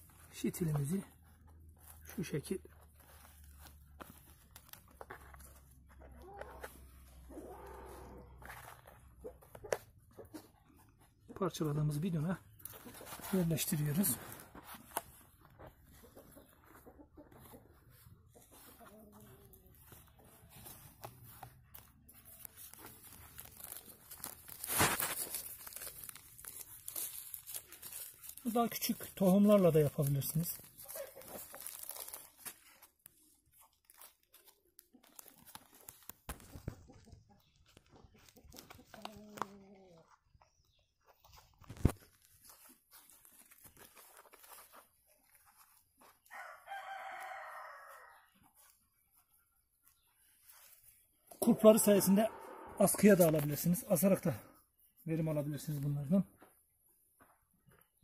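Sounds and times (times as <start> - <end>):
soil and plastic rustling: 0.0 - 46.4
rooster crowing: 46.3 - 48.3.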